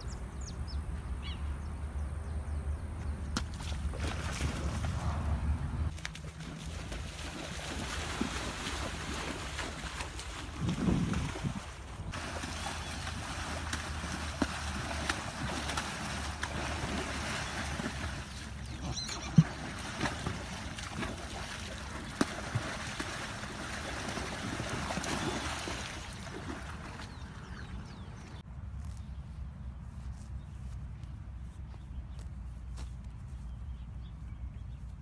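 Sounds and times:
horses wading through water: 3.0s - 28.4s
wind buffeting microphone: 10.2s - 18.3s.

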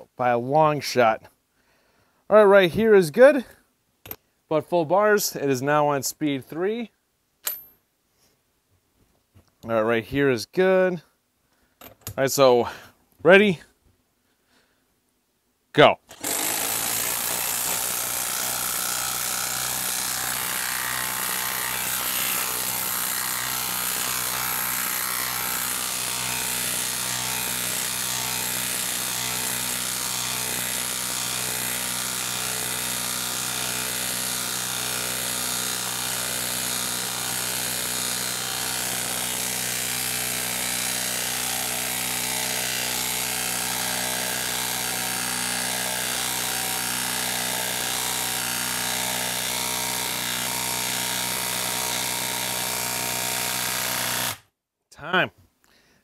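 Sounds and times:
impact wrench hammering: 16.1s - 54.4s.

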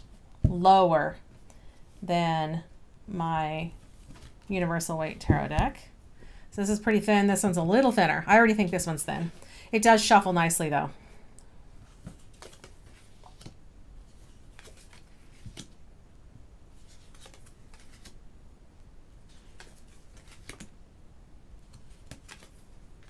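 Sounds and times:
cards swishing and tapping: 19.3s - 20.7s, 21.6s - 22.6s.

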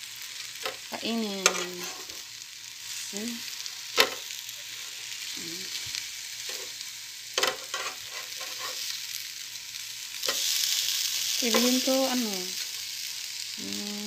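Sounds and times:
meat sizzling on a grill: 0.0s - 14.0s
metal spatula scraping a grill: 1.4s - 2.2s, 6.4s - 6.8s, 7.4s - 9.0s, 10.2s - 10.8s.

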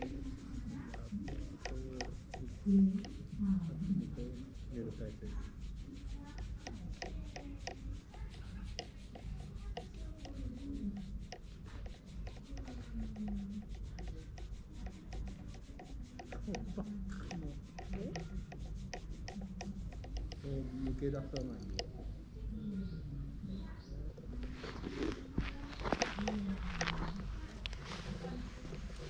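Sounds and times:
fingers scratching cat fur: 0.0s - 22.6s, 24.3s - 29.0s.

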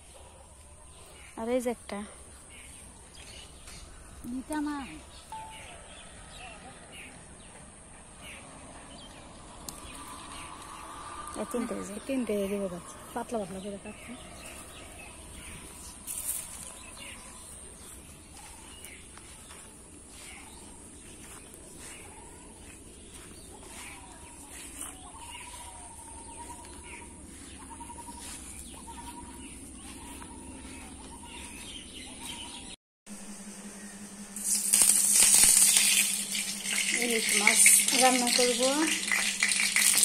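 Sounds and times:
bird chirps: 2.5s - 7.6s, 8.2s - 32.8s
fish frying in a pan: 34.4s - 40.0s.

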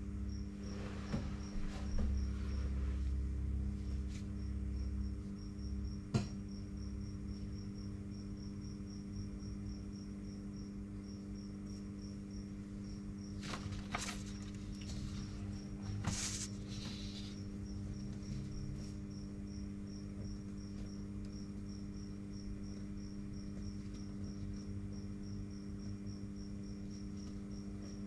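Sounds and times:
cricket chirping: 0.0s - 28.0s
paper rustling: 13.4s - 17.4s.

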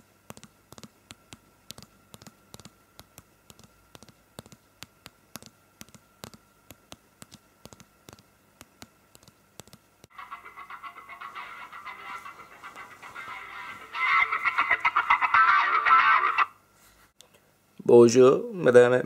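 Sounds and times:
fingers tapping on camera: 0.2s - 10.2s.

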